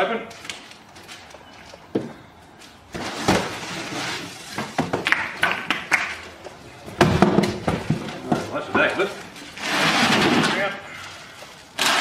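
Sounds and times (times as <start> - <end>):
cardboard and plastic wrap rustling: 2.6 - 5.0, 6.9 - 12.0.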